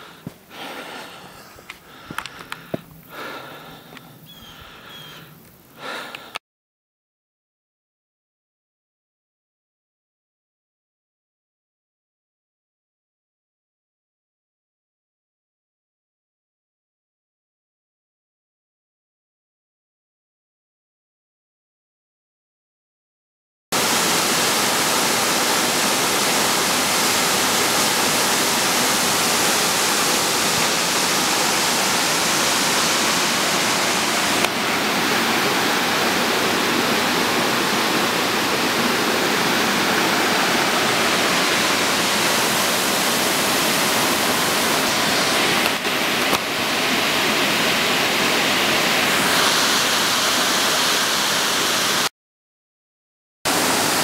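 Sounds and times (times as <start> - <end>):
water rushing over rock: 23.8 - 52.1, 53.5 - 54.0.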